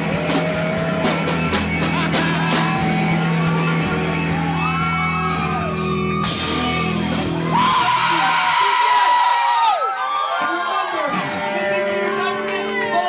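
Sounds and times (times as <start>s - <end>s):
rock band playing loud: 0.0s - 13.0s.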